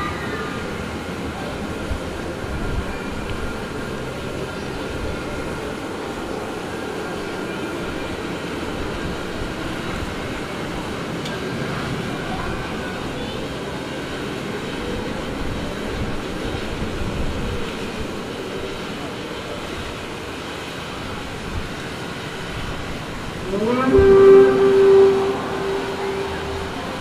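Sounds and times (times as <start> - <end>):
faint sustained tones: 23.4 - 27.0.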